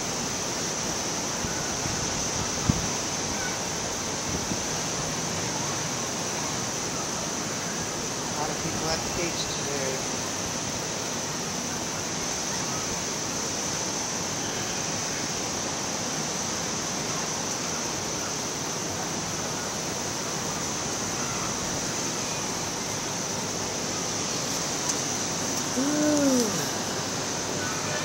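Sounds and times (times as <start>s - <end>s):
high hiss: 0.0s - 28.0s
distant ocean surf: 3.1s - 28.0s
breeze: 17.1s - 28.0s.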